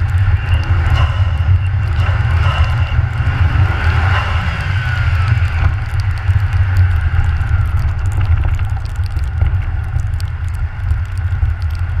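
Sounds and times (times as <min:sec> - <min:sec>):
car engine rumble: 0:00.0 - 0:12.0
small clicks: 0:05.4 - 0:11.9.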